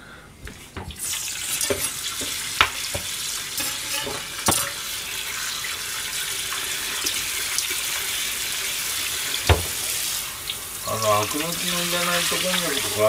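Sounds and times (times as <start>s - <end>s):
water running into steel sink: 0.8s - 13.0s
knocks in sink: 9.4s - 9.8s.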